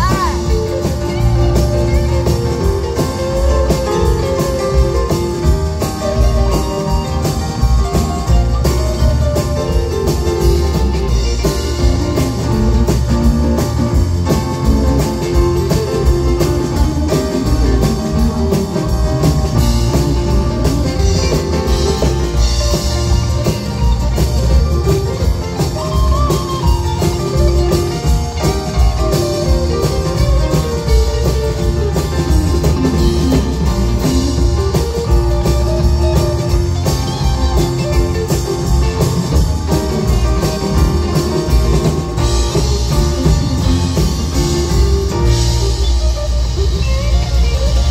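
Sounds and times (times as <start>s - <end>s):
drum kit: 0.0s - 47.9s
electric guitars: 0.0s - 47.9s
keyboard: 0.0s - 47.9s.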